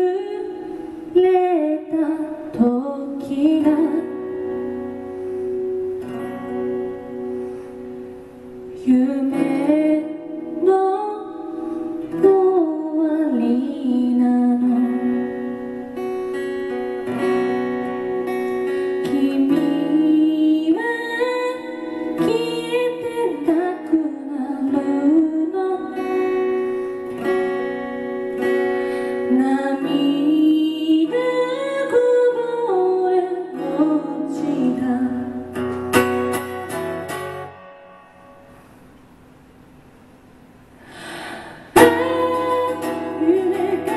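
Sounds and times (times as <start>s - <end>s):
woman singing: 0.0s - 4.8s, 8.6s - 15.7s, 18.8s - 26.7s, 29.1s - 35.8s, 41.7s - 43.9s
acoustic guitar strumming: 0.0s - 43.9s.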